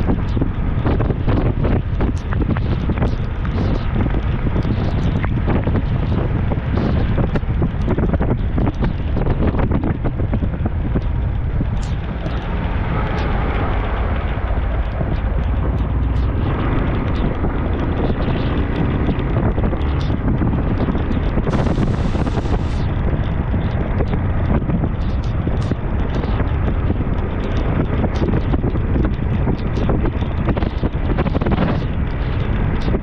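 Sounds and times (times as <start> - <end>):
wind buffeting microphone: 0.0 - 33.0
motorcycle engine: 10.8 - 24.4.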